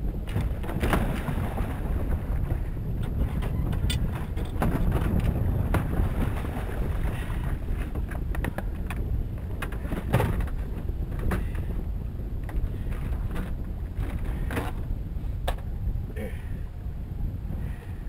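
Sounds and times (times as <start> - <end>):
choppy water against boat: 0.0 - 18.0
wind rumbling on microphone: 0.0 - 18.0
knocks and thumps from gear: 0.3 - 1.3, 3.0 - 6.0, 9.6 - 11.7, 12.4 - 14.8.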